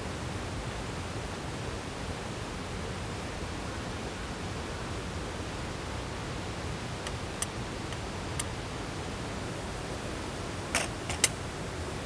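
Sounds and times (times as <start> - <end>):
steady background noise: 0.0 - 12.0
pot clicking on metal table: 10.8 - 11.4.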